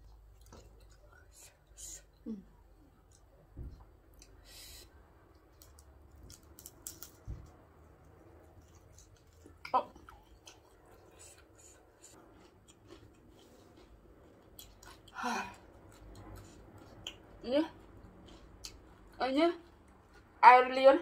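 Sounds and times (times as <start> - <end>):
crunching and chewing: 0.0 - 1.3, 5.3 - 20.4.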